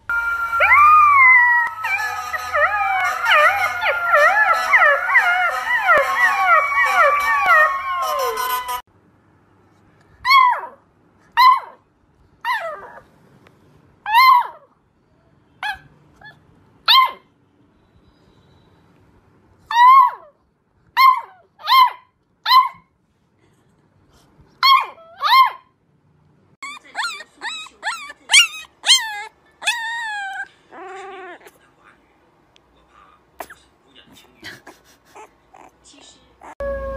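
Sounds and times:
puppy howling: 0.1s - 8.8s, 26.6s - 31.5s, 36.4s - 36.9s
puppy yips: 1.1s - 8.8s, 10.2s - 10.8s, 11.4s - 11.8s, 14.1s - 14.7s, 15.6s - 17.3s, 19.7s - 20.4s, 21.0s - 22.9s, 24.6s - 25.7s, 26.6s - 31.5s.

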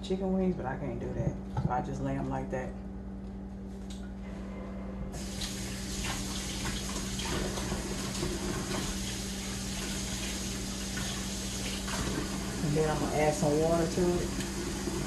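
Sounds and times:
faucet water running into sink: 5.2s - 15.0s.

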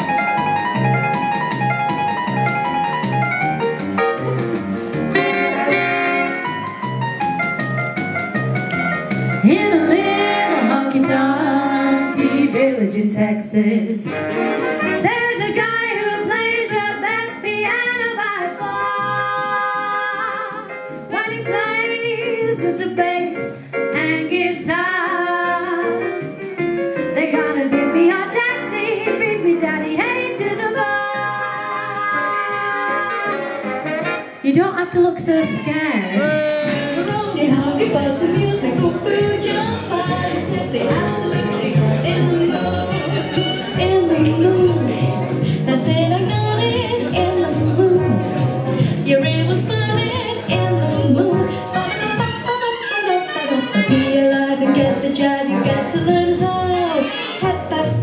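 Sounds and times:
instrumental accompaniment: 0.0s - 58.0s
women singing: 9.4s - 14.3s, 15.0s - 26.1s, 27.2s - 33.5s, 35.4s - 52.0s, 53.2s - 58.0s.

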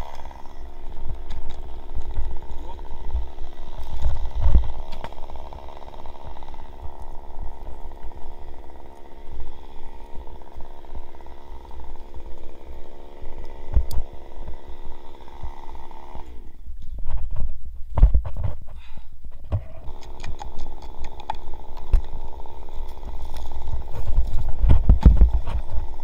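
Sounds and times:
chainsaw idling: 0.0s - 16.9s, 19.6s - 26.0s
wind rumble on microphone: 24.0s - 25.8s.

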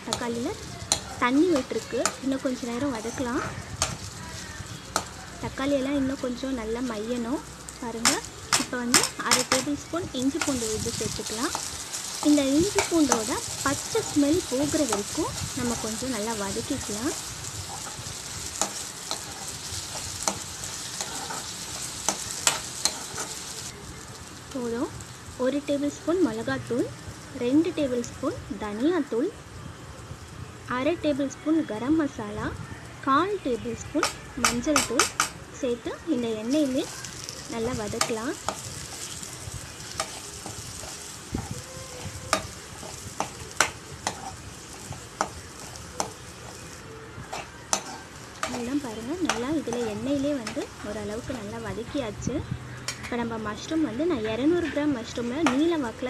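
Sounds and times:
vegetables sizzling in hot oil: 0.0s - 56.0s
metal spoon scraping pan: 16.8s - 23.5s, 39.9s - 46.7s, 47.3s - 51.4s.

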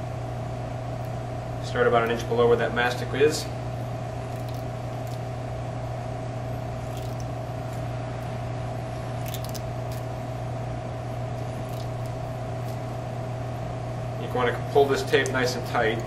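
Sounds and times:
low hum of room machinery: 0.0s - 16.0s
electrical tape crackling: 4.2s - 5.4s, 6.7s - 8.3s, 9.1s - 10.2s, 11.3s - 13.0s, 14.8s - 16.0s.

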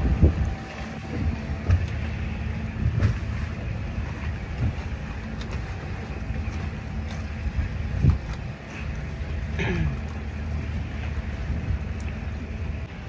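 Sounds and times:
wind noise: 0.0s - 2.0s, 6.5s - 8.8s
outboard motors running: 0.0s - 13.0s
water noise: 0.0s - 13.0s.

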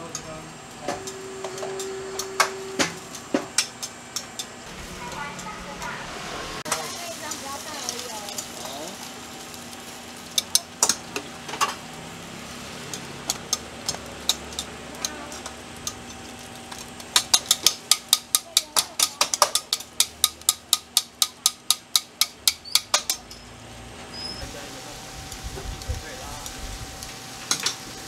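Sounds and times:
metal tongs clacking on griddle: 0.0s - 6.0s, 6.7s - 11.9s, 12.8s - 23.5s, 27.0s - 27.9s
steady sizzle: 0.0s - 28.0s.

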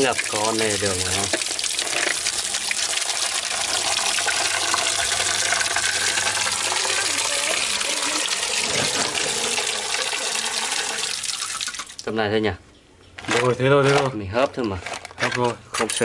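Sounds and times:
water running into a pot: 0.0s - 12.1s.

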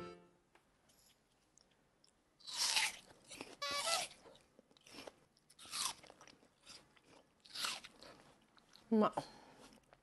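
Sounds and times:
crunchy chewing: 1.1s - 8.8s.

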